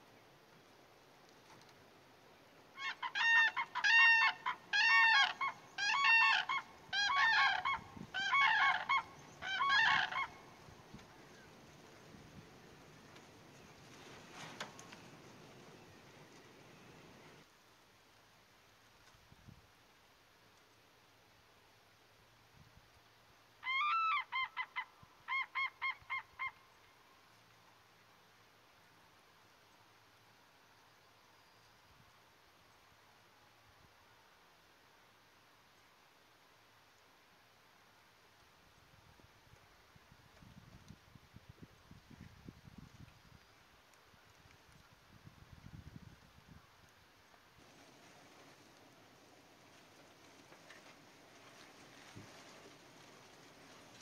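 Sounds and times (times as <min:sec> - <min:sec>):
crane trumpeting calls: 0:02.8 - 0:10.4.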